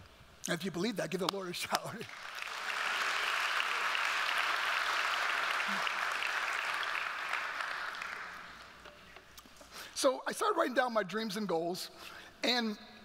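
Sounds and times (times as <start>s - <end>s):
congregation applauding: 2.0s - 8.9s.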